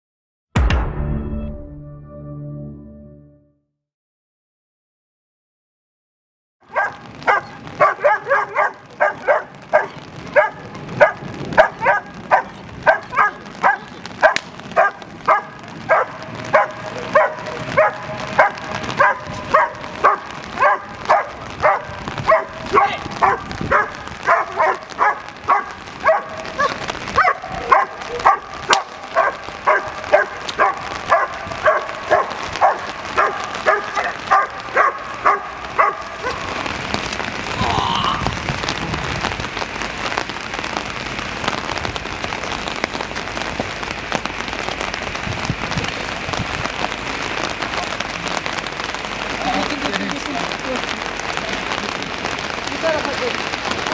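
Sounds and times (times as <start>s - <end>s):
heavy rain on pavement: 6.6s - 53.9s
dog barking: 6.7s - 36.6s.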